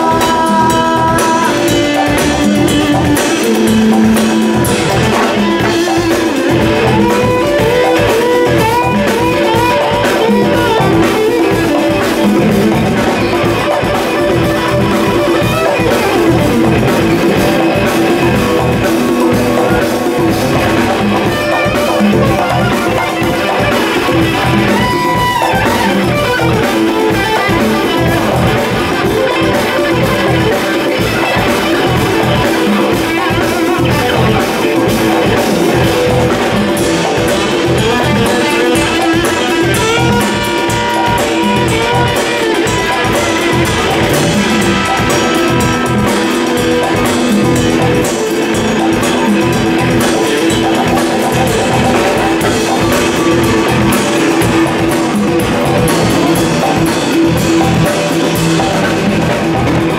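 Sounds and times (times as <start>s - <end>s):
electric guitar with bent notes: 0.0s - 59.9s
rock band playing live: 0.0s - 59.9s.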